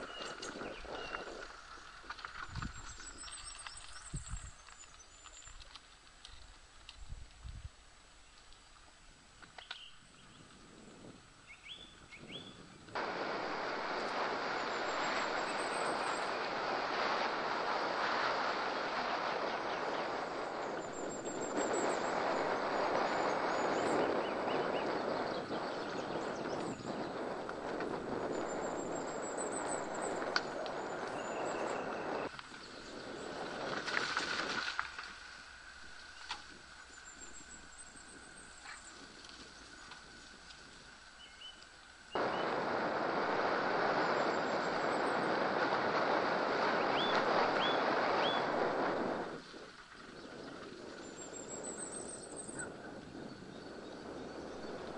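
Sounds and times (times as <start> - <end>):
wind on microphone: 0.0 - 7.8, 9.0 - 54.9
bike tyres rolling on gravel: 0.0 - 54.9
bike clicks and rattles: 1.4 - 7.6
rising bird chirps: 41.2 - 42.6.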